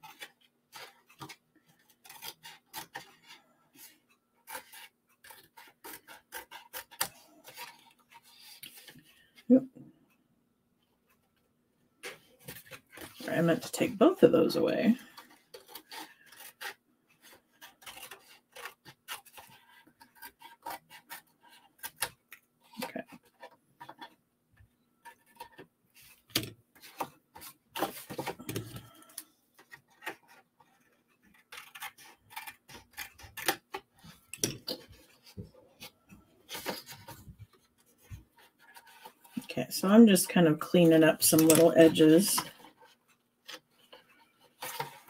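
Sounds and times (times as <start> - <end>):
cardstock rustling: 0.0 - 9.4, 12.0 - 24.2, 25.0 - 45.0
scissors cutting cardstock: 31.3 - 35.0.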